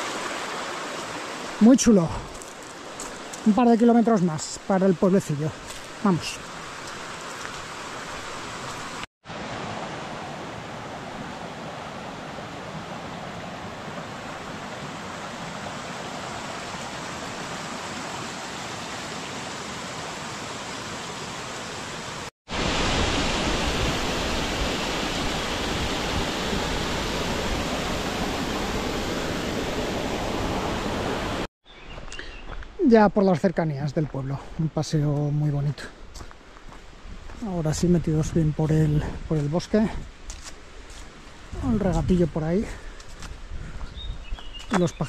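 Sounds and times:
stream water rushing: 0.0s - 31.5s.

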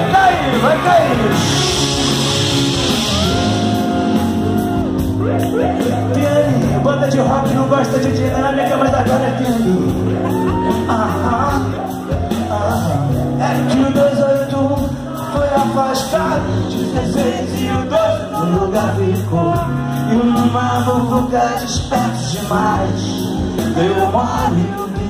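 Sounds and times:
live rock band: 0.0s - 25.0s
voices singing and shouting: 0.0s - 25.0s.

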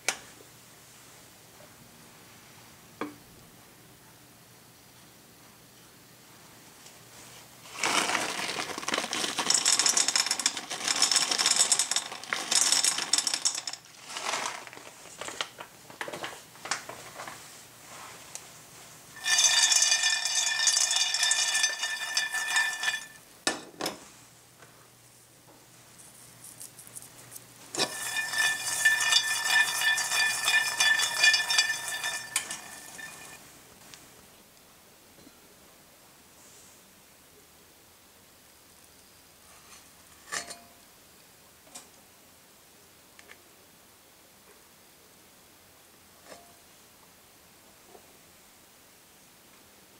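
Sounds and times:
peanuts rattling in a frying pan: 7.6s - 15.7s, 19.2s - 23.2s, 27.7s - 33.5s
metal pan ringing: 27.9s - 33.4s.

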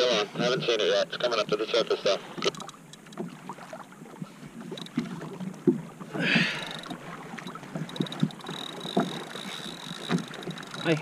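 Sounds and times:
water lapping against hull: 0.0s - 11.0s.

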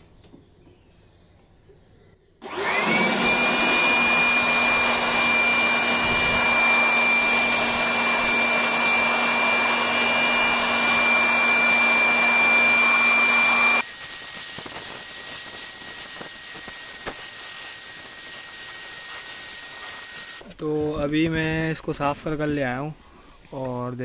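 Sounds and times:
electric air blower whining: 2.4s - 20.4s.

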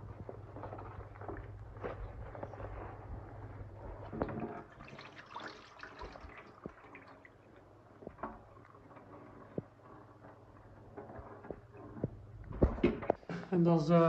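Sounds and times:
water pouring into steel sink: 4.2s - 9.4s.

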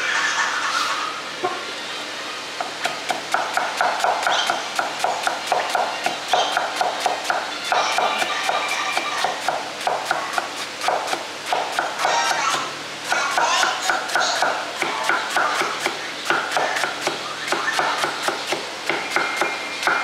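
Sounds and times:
cleaver chopping on wooden block: 13.9s - 20.0s.

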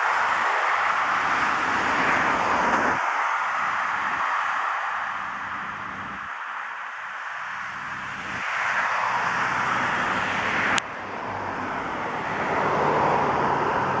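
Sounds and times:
passing cars: 0.0s - 14.0s.

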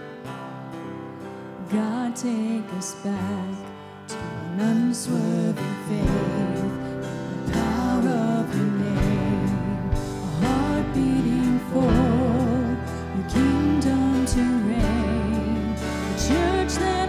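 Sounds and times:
strummed acoustic guitar: 0.0s - 17.0s
person singing with vibrato: 1.4s - 17.0s
steady bass line: 6.0s - 17.0s.

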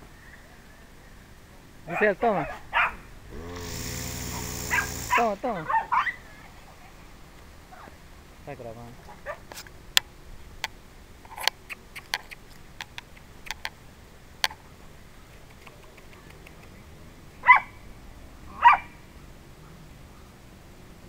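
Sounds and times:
dog barking: 1.9s - 3.1s, 4.7s - 6.2s, 9.2s - 9.4s, 17.4s - 17.8s, 18.6s - 19.0s.

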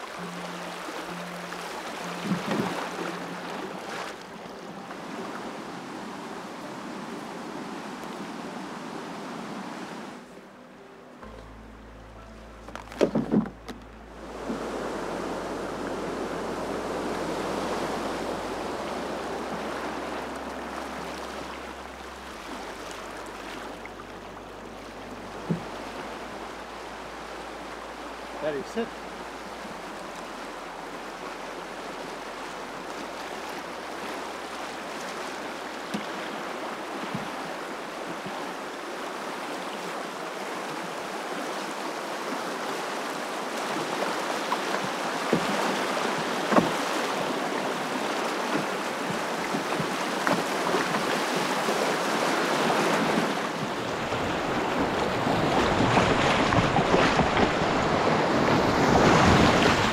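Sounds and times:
water rushing down rapid: 0.0s - 10.3s, 14.1s - 59.9s
canoe knocks: 1.8s - 4.2s, 12.6s - 14.7s, 25.4s - 25.9s, 35.8s - 36.2s, 37.0s - 38.3s, 44.5s - 47.5s, 48.3s - 59.9s.

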